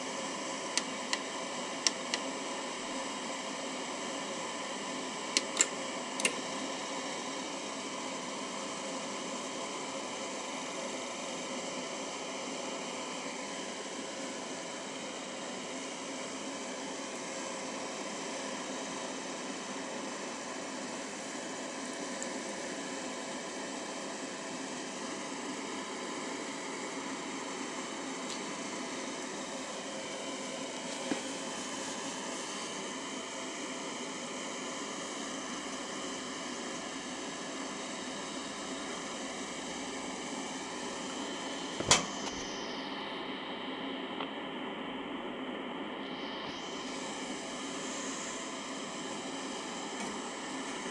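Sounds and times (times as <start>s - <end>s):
fan-like whirring hiss: 0.0s - 50.9s.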